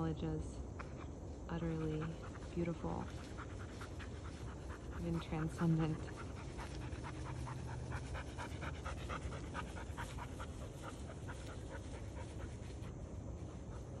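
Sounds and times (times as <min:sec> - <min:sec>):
rapid rhythmic panting: 0:01.5 - 0:14.0.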